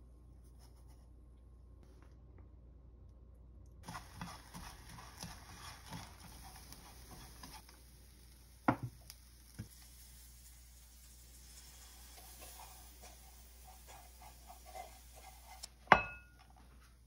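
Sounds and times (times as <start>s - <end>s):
chopsticks scraping in a frying pan: 3.8s - 8.0s, 9.1s - 15.8s.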